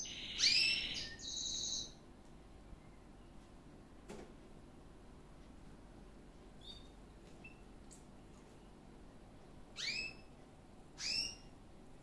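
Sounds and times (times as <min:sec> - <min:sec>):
canary chirping: 0:00.0 - 0:02.0, 0:06.6 - 0:07.6, 0:09.7 - 0:11.6.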